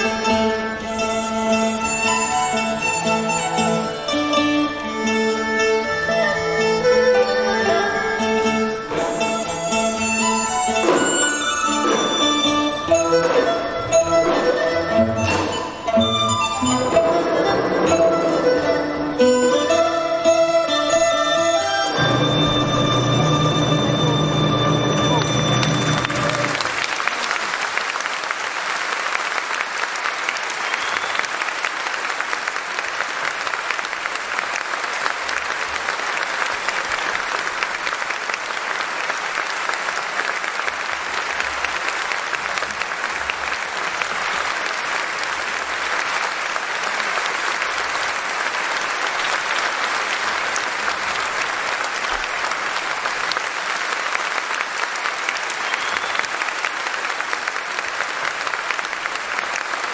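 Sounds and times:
audience applauding: 8.9s - 18.0s, 21.9s - 59.9s.

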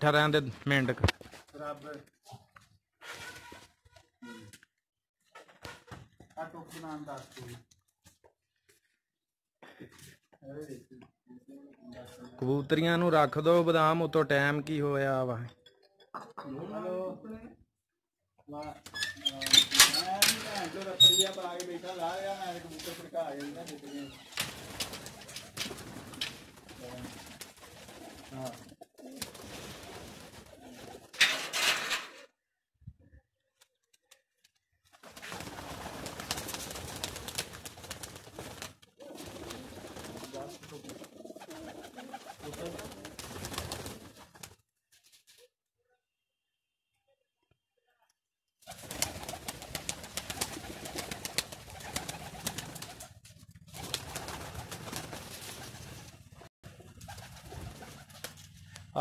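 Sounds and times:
pigeons cooing: 39.0s - 43.0s.

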